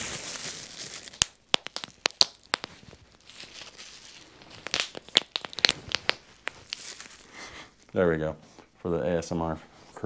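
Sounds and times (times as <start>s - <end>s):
bubble wrap popping: 0.0s - 7.4s.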